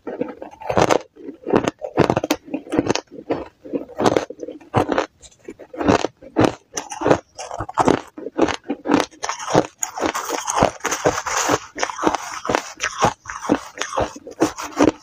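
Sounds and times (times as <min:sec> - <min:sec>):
ice crunching between teeth: 0:00.0 - 0:15.0
metal spoon scraping ice: 0:09.0 - 0:15.0.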